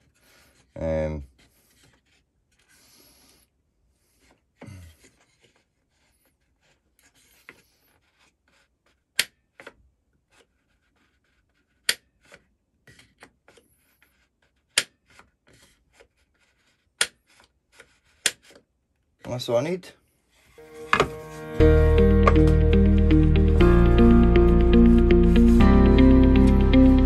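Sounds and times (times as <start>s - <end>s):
wood rubbing: 20.4s - 26.3s.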